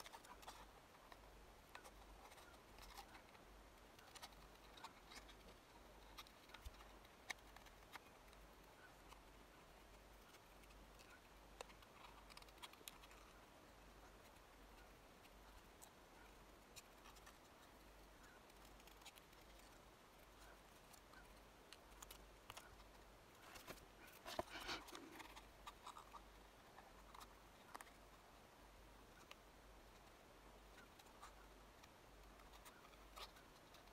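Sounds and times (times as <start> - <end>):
card rustling and clicks: 20.4 - 26.3.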